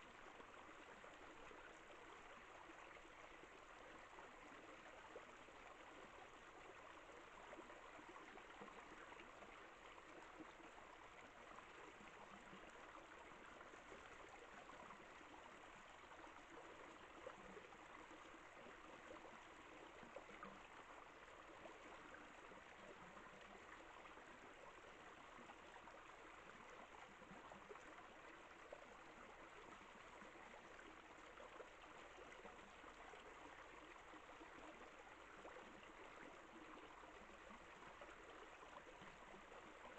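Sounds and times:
faint steady hiss: 0.0 - 39.9.

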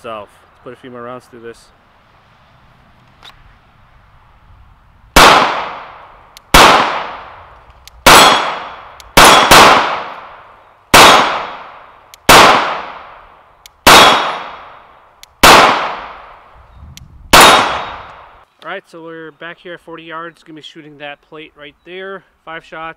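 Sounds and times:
pistol shots with echo: 5.2 - 7.4, 8.0 - 13.2, 13.8 - 14.8, 15.4 - 16.4, 17.3 - 18.3.

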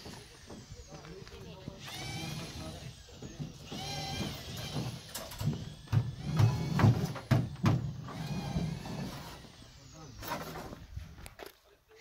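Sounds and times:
knocks and thumps: 3.2 - 9.1.

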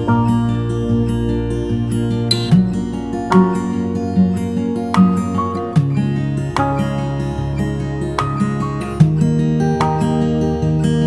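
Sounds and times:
acoustic guitar piece: 0.0 - 11.0.

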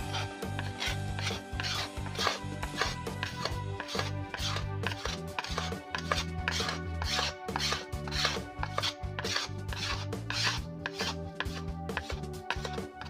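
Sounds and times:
knife scraping dry bamboo: 0.0 - 13.0.

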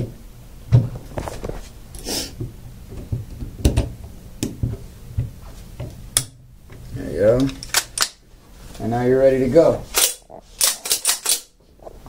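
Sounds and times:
clicks and knocks of tool parts: 9.9 - 11.5.

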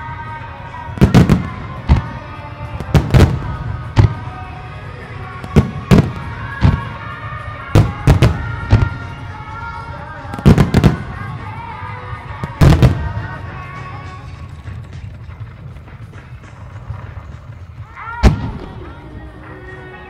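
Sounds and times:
music playing: 0.0 - 20.0
fireworks bangs: 0.8 - 9.5, 10.1 - 19.4.

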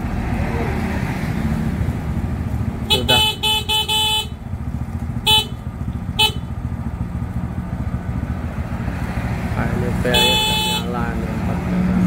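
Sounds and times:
motorcycle horn toots: 2.8 - 4.5, 5.1 - 6.7, 10.0 - 11.1.

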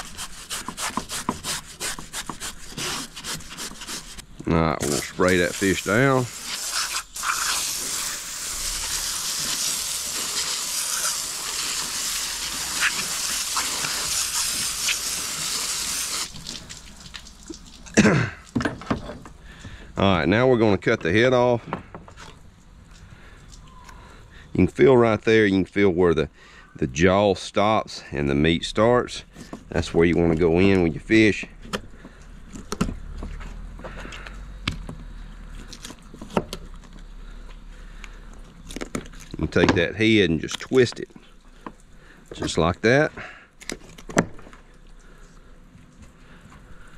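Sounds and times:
knife cutting through fish: 0.0 - 4.2
hose nozzle spraying water: 4.8 - 18.0.

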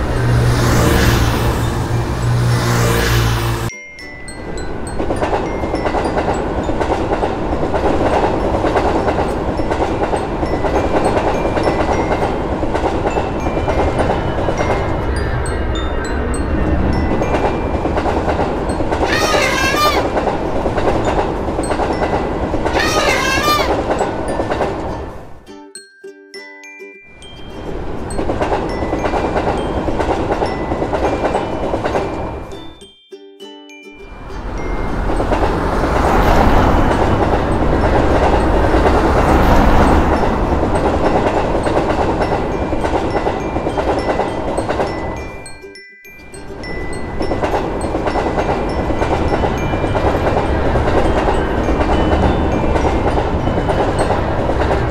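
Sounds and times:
train rumbling and clattering: 0.0 - 25.4, 27.4 - 32.8, 34.1 - 45.6, 46.3 - 54.9
elephant trumpeting: 19.0 - 20.2, 22.7 - 24.0.

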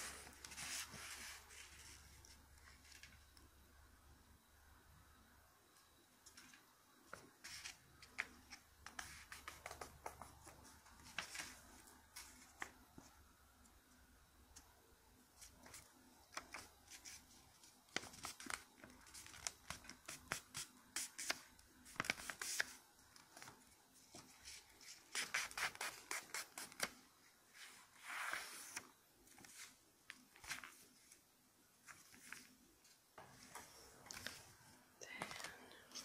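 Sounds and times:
paper crackling as folded: 15.6 - 23.6, 28.2 - 31.2
paper rustling: 27.6 - 31.2, 33.3 - 34.6.

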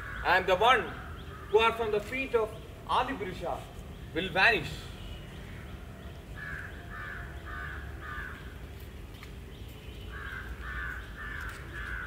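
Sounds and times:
crow cawing: 0.0 - 1.9, 6.4 - 8.6, 10.1 - 12.0.

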